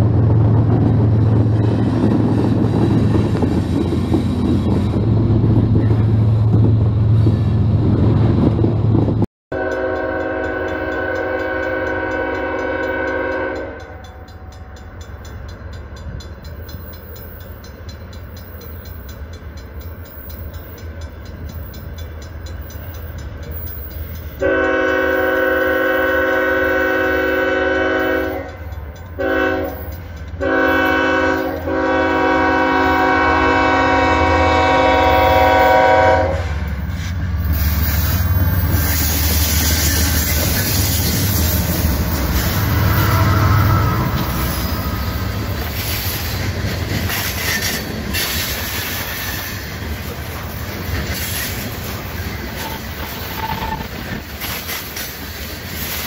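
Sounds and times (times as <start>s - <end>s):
locomotive air horn blasts: 9.5s - 14.2s, 24.4s - 36.7s.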